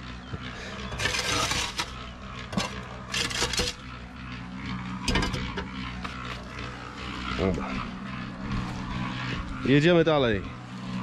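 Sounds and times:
concrete mixer humming: 0:00.0 - 0:11.0
wet concrete scraping: 0:00.5 - 0:04.4.

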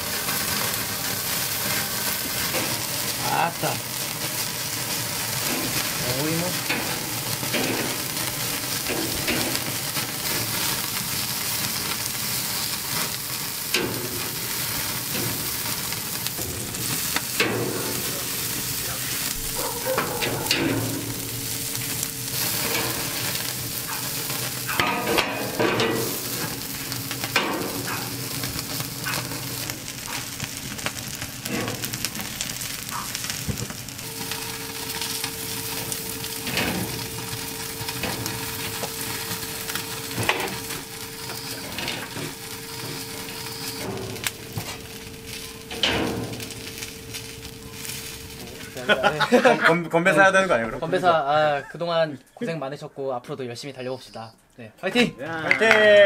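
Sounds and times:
pork sizzling on a grill: 0:00.0 - 0:52.6, 0:53.6 - 0:56.0
fat spitting over flames: 0:00.3 - 0:44.9.

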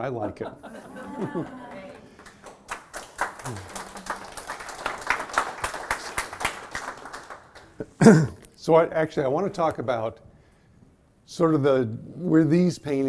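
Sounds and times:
audience applauding: 0:00.9 - 0:07.8.

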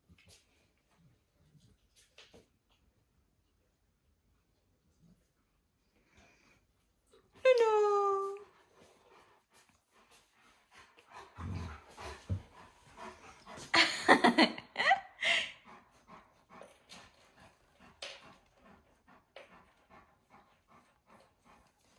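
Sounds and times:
dog panting: 0:08.3 - 0:21.9.

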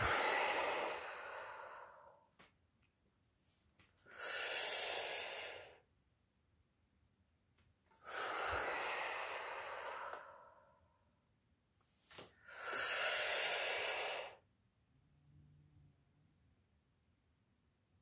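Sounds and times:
forceful breathing through mouth: 0:00.0 - 0:02.2, 0:04.0 - 0:05.8, 0:08.0 - 0:10.8, 0:12.3 - 0:14.4.

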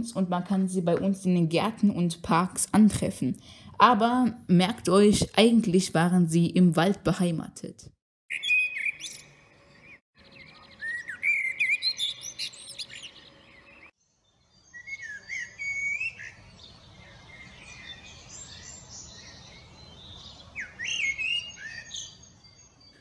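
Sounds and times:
blackbird singing: 0:08.3 - 0:23.0.

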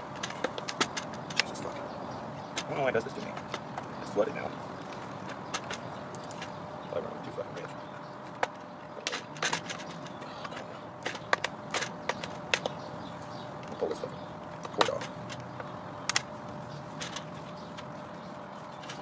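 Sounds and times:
clicks and taps on plastic: 0:00.0 - 0:01.6, 0:08.2 - 0:12.9, 0:13.6 - 0:16.3.

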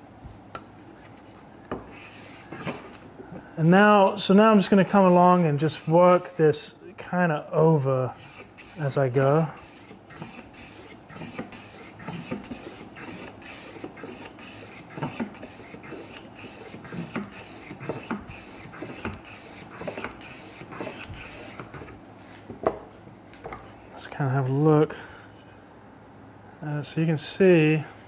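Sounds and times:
plane shaving wood: 0:01.8 - 0:03.0, 0:03.8 - 0:06.6, 0:08.0 - 0:22.5.

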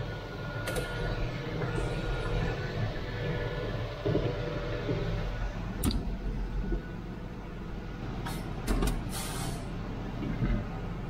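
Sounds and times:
tractor diesel engine running: 0:00.0 - 0:11.0
short hiss: 0:09.1 - 0:09.6.

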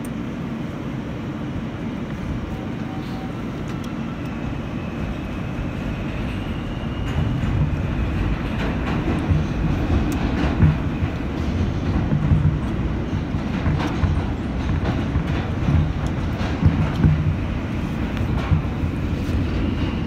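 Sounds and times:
faint train whine: 0:00.0 - 0:20.0
subway train rumble: 0:00.0 - 0:20.0
wheels clacking over rail joints: 0:06.9 - 0:20.0.

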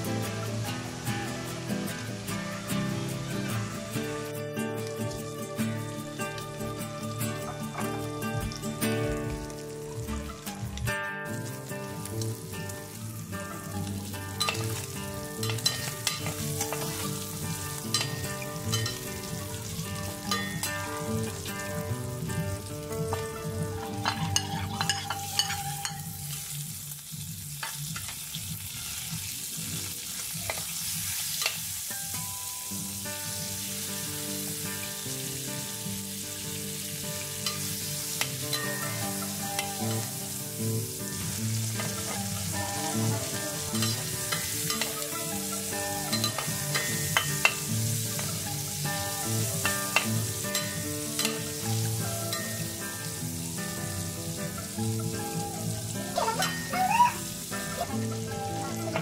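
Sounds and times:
meat sizzling in a frying pan: 0:00.0 - 0:59.0
soft background music: 0:00.0 - 0:59.0
metal spatula scraping a pan: 0:14.4 - 0:21.0, 0:23.1 - 0:26.6, 0:41.3 - 0:51.4.

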